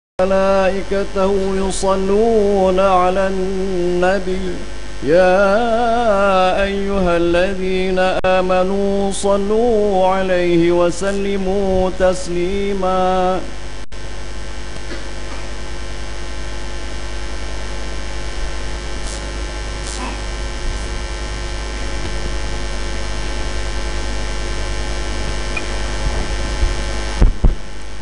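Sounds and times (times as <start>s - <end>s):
electrical mains hum: 0.2s - 28.0s
microphone handling knocks: 26.0s - 27.8s.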